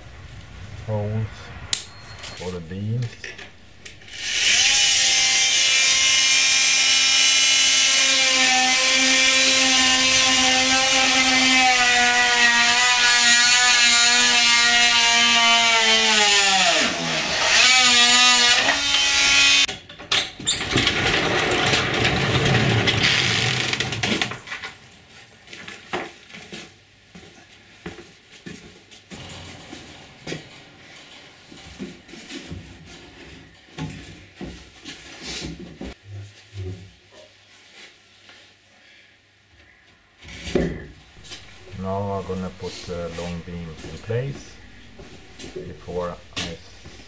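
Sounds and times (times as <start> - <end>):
rough cutting buzz: 0.0 - 19.7, 41.1 - 47.0
oscillating multi-tool whining: 3.2 - 19.7.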